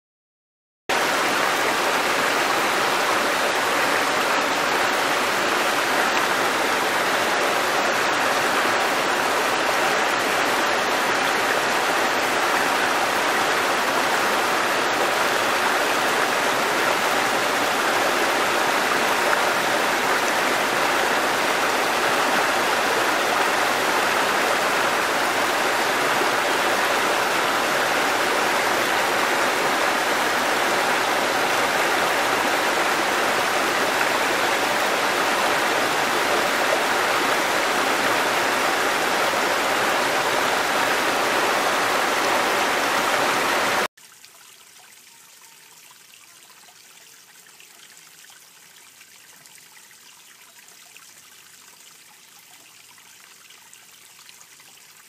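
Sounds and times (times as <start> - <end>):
stream rushing over rocks: 0.9 - 44.9.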